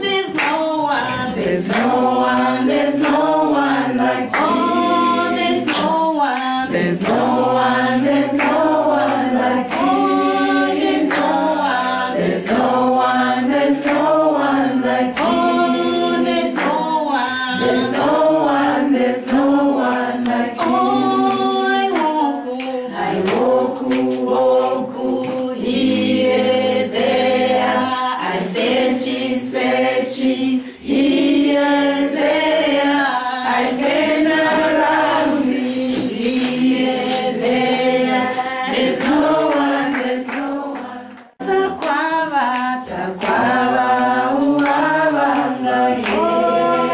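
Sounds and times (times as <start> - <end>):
choir singing a cappella: 0.0 - 46.9.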